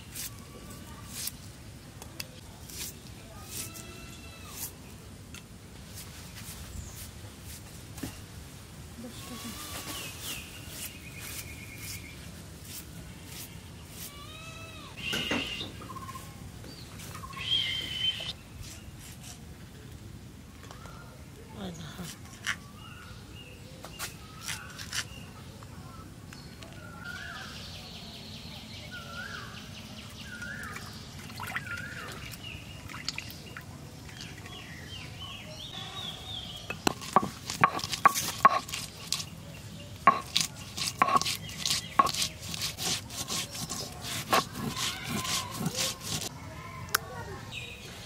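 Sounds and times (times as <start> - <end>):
birds calling: 13.9 - 18.4, 26.4 - 46.3
sharp knocks and clatters: 36.7 - 38.8.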